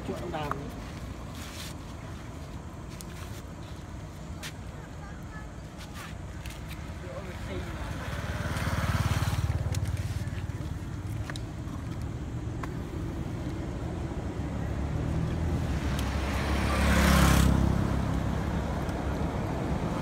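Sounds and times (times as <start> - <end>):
vehicle passing with tyre hiss: 5.8 - 11.1, 12.3 - 20.0
engine rumbling: 6.2 - 20.0.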